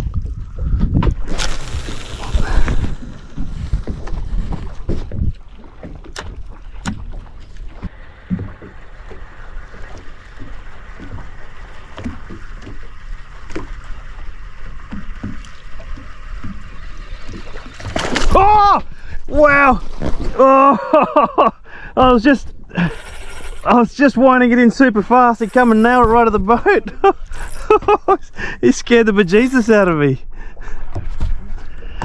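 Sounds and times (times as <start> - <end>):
wind on microphone: 0.0 - 5.7
waves slapping boat hull: 0.0 - 22.8, 23.6 - 32.0
fishing reel whirring: 22.8 - 23.7, 27.2 - 27.7.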